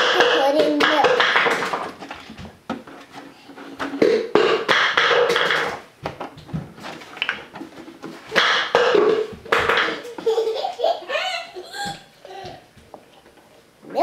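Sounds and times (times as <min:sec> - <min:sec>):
plastic jug taps and knocks: 0:08.4 - 0:09.9.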